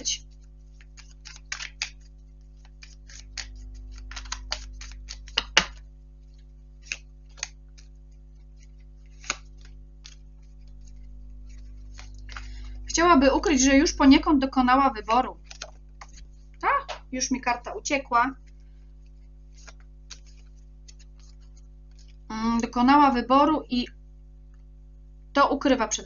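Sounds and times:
cards flicking and tapping: 0.2 - 12.8, 15.4 - 16.3, 19.5 - 22.2.

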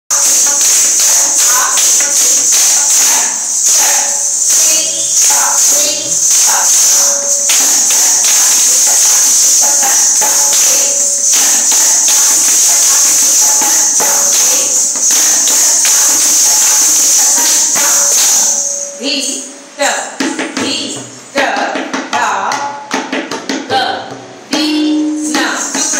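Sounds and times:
dancers' foot strikes: 0.1 - 18.5
ankle bells jingling: 0.1 - 19.5.

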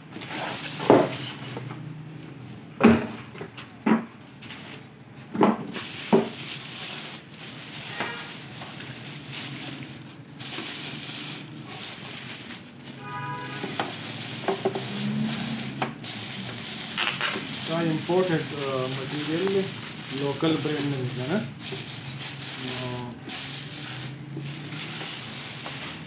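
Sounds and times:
plastic bag crinkling: 3.6 - 26.0.

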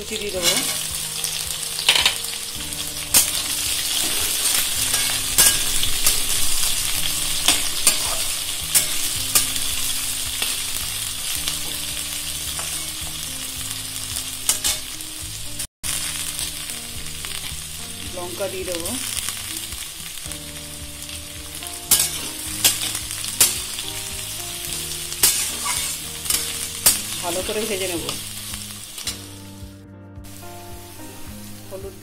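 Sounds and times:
onions sizzling in oil: 0.0 - 32.0
metal spatula scraping pan: 0.4 - 0.9, 3.1 - 10.6, 21.9 - 23.9, 25.2 - 28.0.

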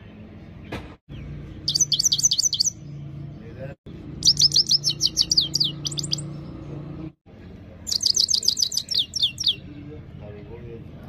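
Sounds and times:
goldfinch singing: 1.1 - 3.2, 4.2 - 6.7, 7.9 - 9.8.

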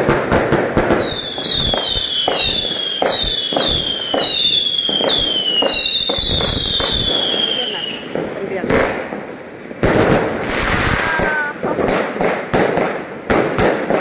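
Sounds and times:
firework bangs: 0.0 - 14.0
firework crackle: 0.0 - 14.0
falling firework whistles: 0.9 - 8.1.

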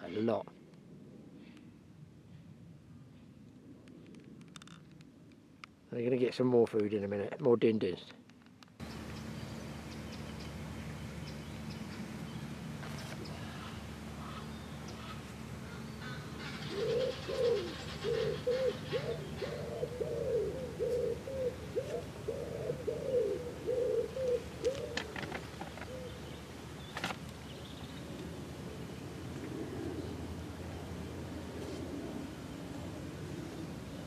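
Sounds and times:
pigeon cooing: 13.1 - 26.4.

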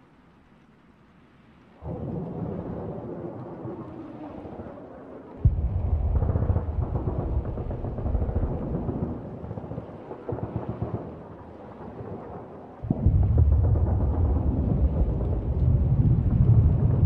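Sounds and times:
crackle: 0.0 - 17.0
deep rumbling boom: 5.4 - 9.0, 12.9 - 17.0.

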